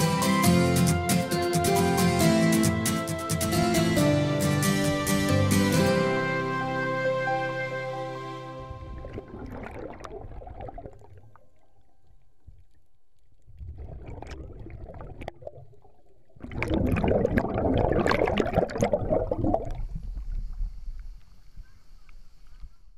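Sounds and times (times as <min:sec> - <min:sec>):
underwater bubbles from divers: 0:08.6 - 0:11.8, 0:13.4 - 0:21.3.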